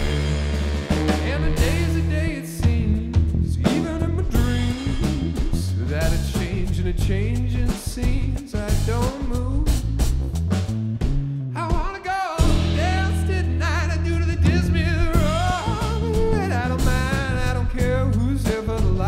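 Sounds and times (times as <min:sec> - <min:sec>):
saxophone: 0:00.0 - 0:03.2, 0:14.5 - 0:18.0
funk band playing: 0:00.0 - 0:19.0.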